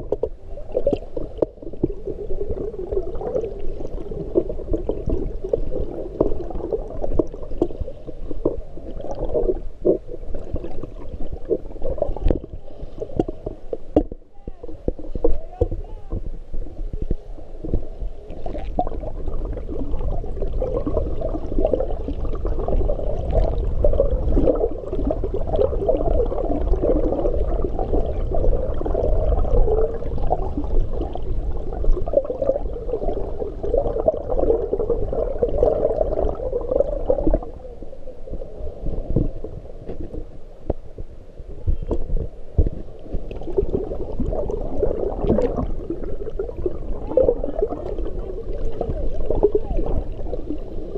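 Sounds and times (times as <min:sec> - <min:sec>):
underwater rumble and gurgling: 0:00.0 - 0:50.9
swimmer kicking underwater: 0:41.9 - 0:50.9.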